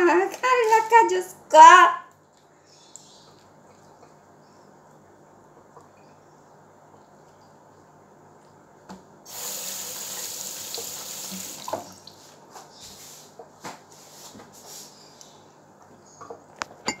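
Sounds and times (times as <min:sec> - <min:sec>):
water running into steel sink: 0:09.3 - 0:12.1.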